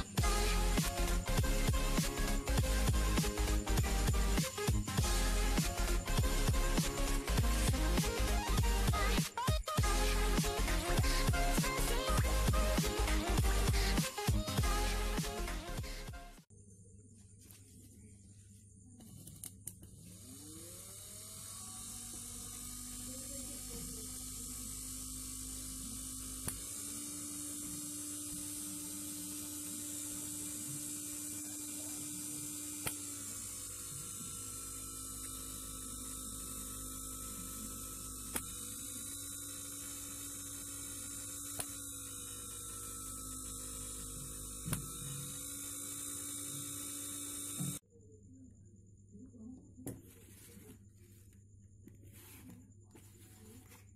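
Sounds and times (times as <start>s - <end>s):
small electric motor whine: 0.0s - 16.5s, 19.0s - 47.8s.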